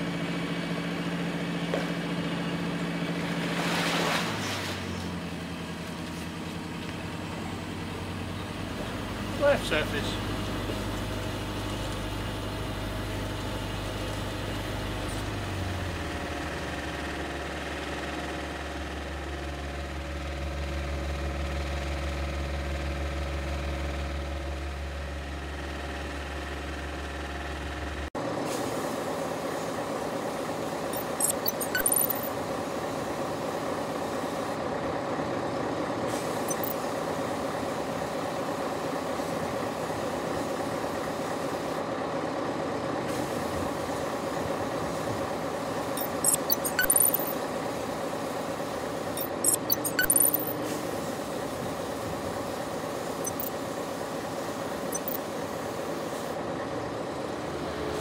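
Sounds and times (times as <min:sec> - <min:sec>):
engine-like drone: 0:42.4 - 0:58.0
brief clicks: 0:46.0 - 0:47.3, 0:49.2 - 0:50.6, 0:53.3 - 0:53.5.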